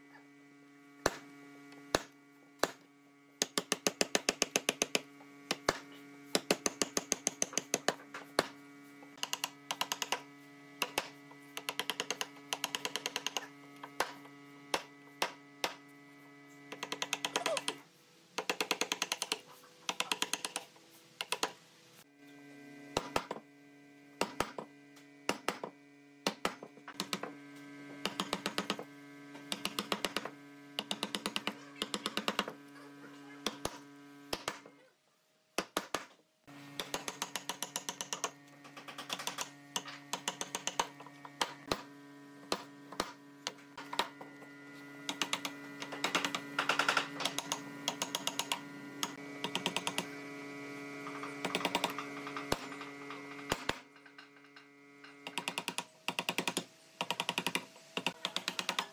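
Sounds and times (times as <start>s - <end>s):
steady hum: 36.4s - 58.1s.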